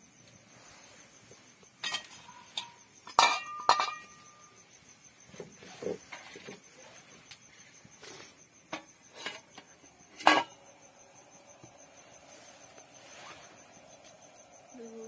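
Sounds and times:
metal steamer plate clank: 0:01.8 - 0:04.3, 0:10.2 - 0:10.5
faint metallic ring: 0:01.8 - 0:04.7.

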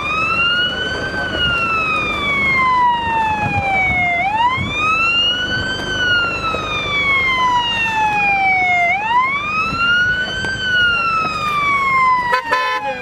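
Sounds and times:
electronic siren wailing: 0:00.0 - 0:13.0.

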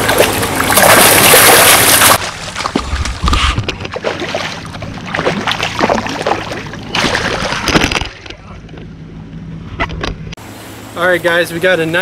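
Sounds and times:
fish splashing in water: 0:00.0 - 0:03.2, 0:03.8 - 0:07.9.

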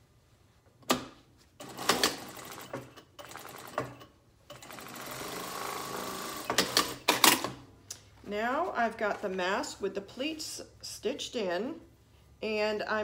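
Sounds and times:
sewing machine stitching: 0:01.6 - 0:07.5.

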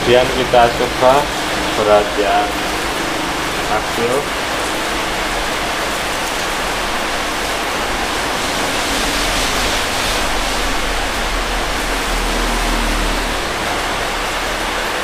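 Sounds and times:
steady hiss: 0:00.0 - 0:12.5.

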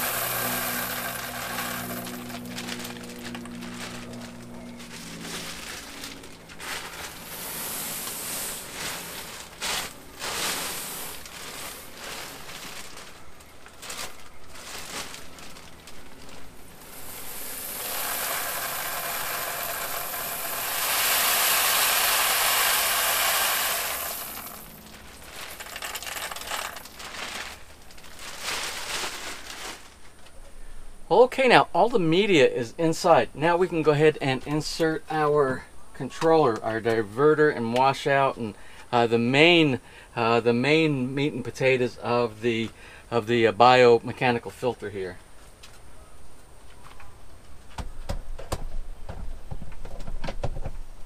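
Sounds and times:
media pieces clattering: 0:00.0 - 0:29.9
plastic bag crinkling: 0:00.0 - 0:30.3.

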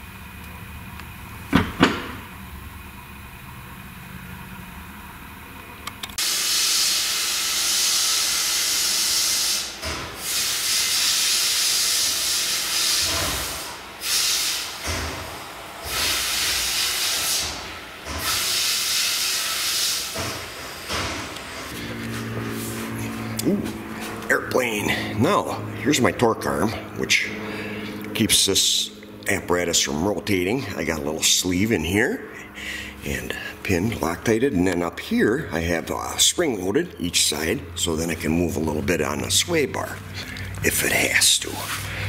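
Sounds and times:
sharp clicks: 0:05.8 - 0:06.2
loud hissing: 0:06.3 - 0:21.0
low steady hum: 0:21.3 - 0:42.0.

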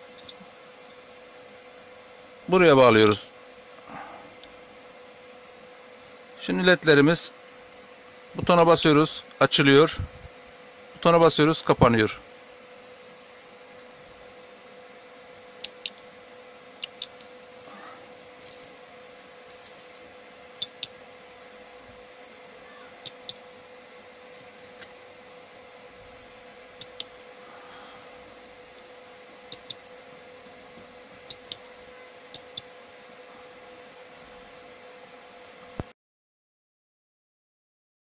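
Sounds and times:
faint steady hum: 0:00.0 - 0:35.9.

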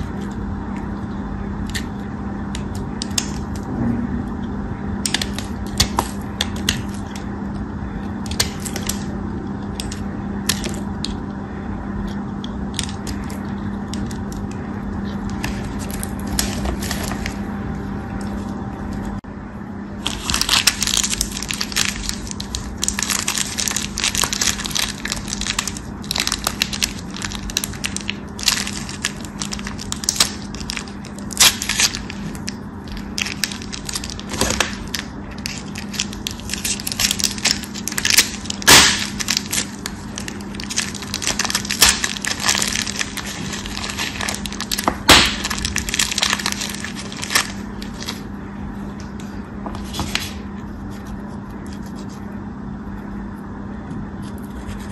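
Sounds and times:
steady low hum: 0:00.0 - 0:54.9
paper wrapper crinkling: 0:15.0 - 0:17.5, 0:20.0 - 0:48.3, 0:49.2 - 0:50.4
soap bar breaking: 0:33.2 - 0:47.6.

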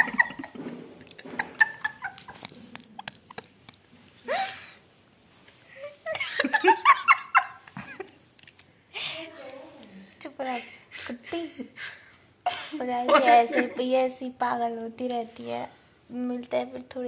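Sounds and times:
women laughing: 0:00.0 - 0:03.6, 0:05.8 - 0:08.2, 0:12.4 - 0:13.8.

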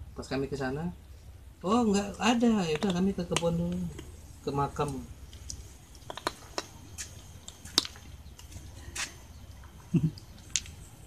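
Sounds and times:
low steady hum: 0:00.0 - 0:11.0
kittens chewing: 0:02.6 - 0:11.0.

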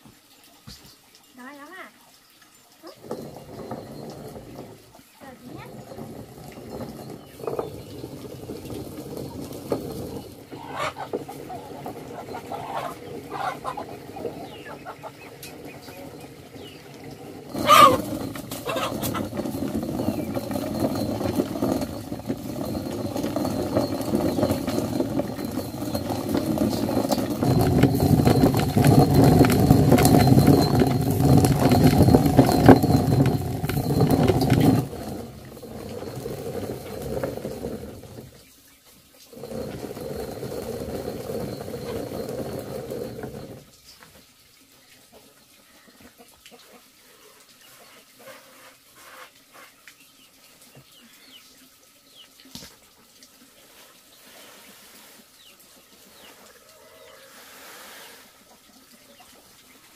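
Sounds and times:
stone mill grinding corn: 0:02.8 - 0:44.2
chickens clucking: 0:10.6 - 0:16.9, 0:17.5 - 0:19.5.

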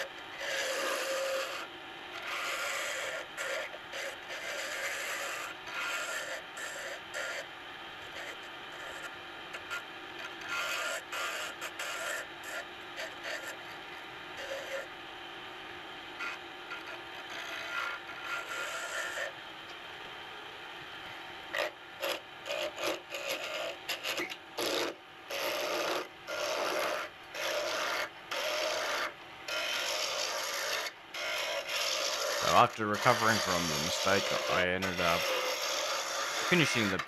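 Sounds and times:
lathe tool cutting wood rasping: 0:00.4 - 0:01.6, 0:02.2 - 0:07.4, 0:17.2 - 0:19.3, 0:21.6 - 0:37.0.

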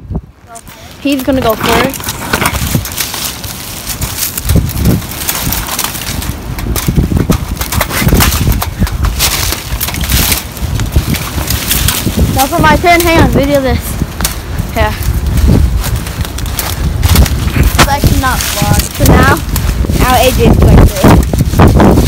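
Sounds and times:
wind on microphone: 0:00.0 - 0:22.0
leaves and twigs crunching underfoot: 0:00.4 - 0:22.0.

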